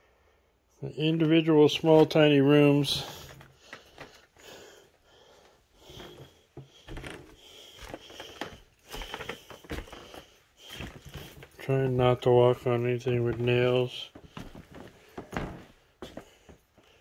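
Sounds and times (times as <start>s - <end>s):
footsteps crunching on debris: 5.9s - 16.6s.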